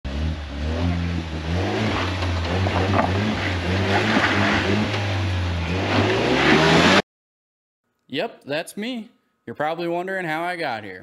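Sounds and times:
car engine revving: 0:00.1 - 0:07.0.

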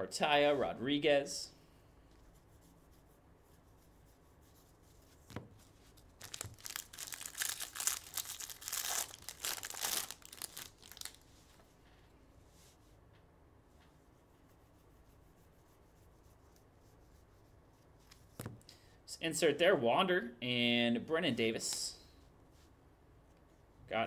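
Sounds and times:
wrapper tearing and crinkling: 0:06.0 - 0:11.3.

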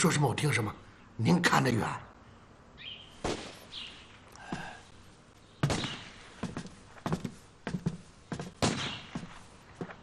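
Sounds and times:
distant gunshots: 0:08.6 - 0:09.1.

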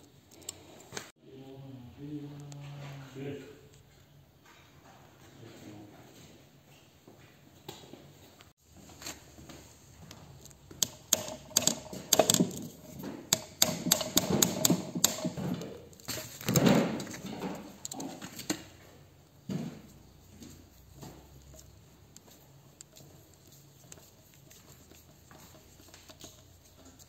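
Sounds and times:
hammer tapping metal punch: 0:10.8 - 0:15.7.

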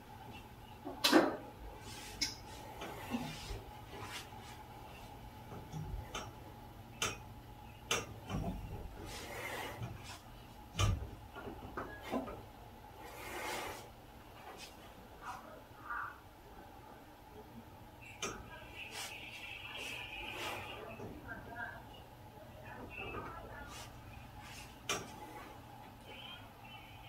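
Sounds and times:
bare feet rubbing on towel: 0:01.8 - 0:05.1, 0:18.8 - 0:20.8, 0:23.6 - 0:25.6.

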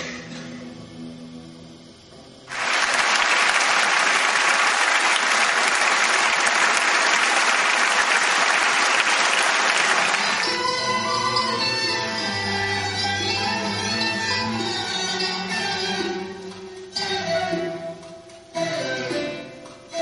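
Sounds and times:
music: 0:00.0 - 0:03.1, 0:09.8 - 0:20.0
audience applauding: 0:02.5 - 0:10.7.

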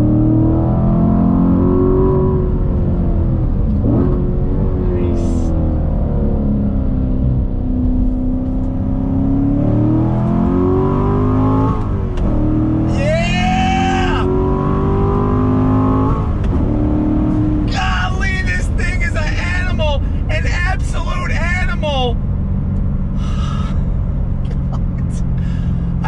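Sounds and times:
car engine accelerating: 0:00.0 - 0:26.0
man laughing: 0:24.4 - 0:25.4.

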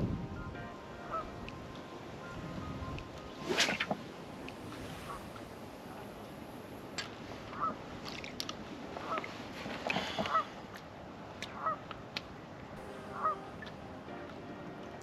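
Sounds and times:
geese honking: 0:00.7 - 0:03.3, 0:12.8 - 0:15.0.

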